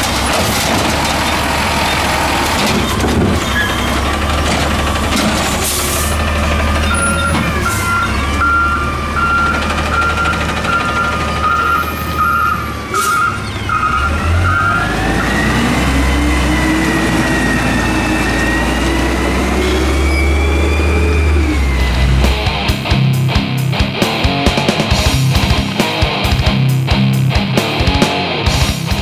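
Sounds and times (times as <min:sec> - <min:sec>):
truck backup alarm beeping: 0:00.0 - 0:22.7
truck engine driving off: 0:00.0 - 0:29.0.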